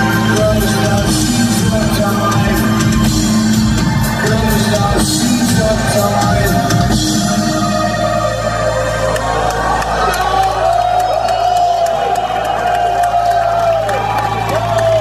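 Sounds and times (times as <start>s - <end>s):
industrial band playing live: 0.0s - 11.0s.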